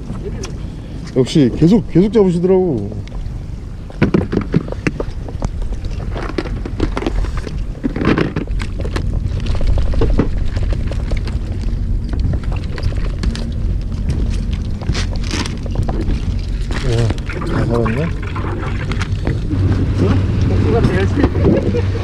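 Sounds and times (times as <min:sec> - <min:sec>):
boat engine low rumble: 0:00.0 - 0:22.0
wind on microphone: 0:03.0 - 0:22.0
gear clicks and knocks: 0:03.9 - 0:19.6.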